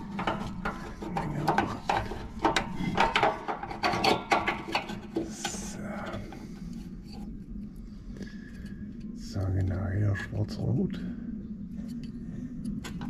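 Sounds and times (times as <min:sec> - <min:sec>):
wiring harness clicking and rubbing: 0:00.0 - 0:07.2.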